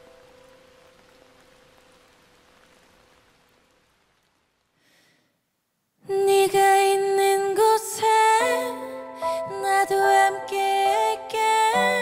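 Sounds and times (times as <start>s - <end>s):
faint hiss: 0.0s - 12.0s
woman singing long notes: 6.0s - 12.0s.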